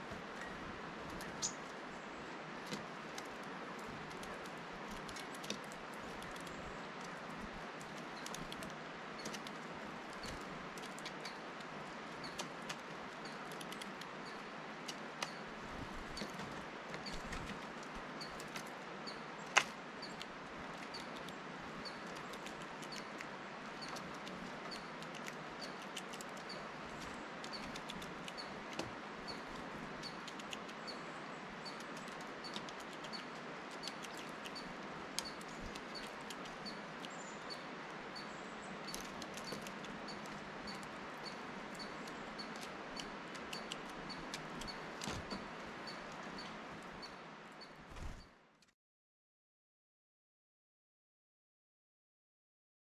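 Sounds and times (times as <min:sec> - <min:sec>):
soft steady hiss: 0:00.0 - 0:48.3
faint high chirp: 0:00.3 - 0:02.1
bird bill tapping on seeds: 0:31.6 - 0:37.6, 0:38.8 - 0:46.5.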